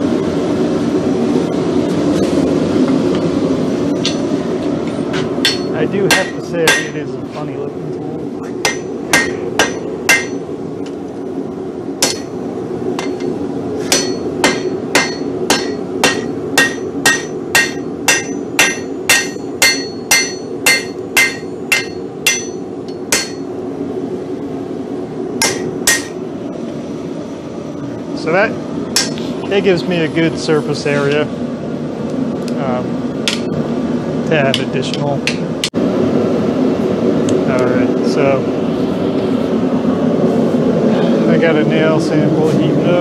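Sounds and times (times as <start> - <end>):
hammer ringing on an anvil: 5.4 - 7.0, 8.6 - 10.4, 12.0 - 12.3, 13.0 - 23.5, 25.4 - 26.2, 29.0 - 29.2.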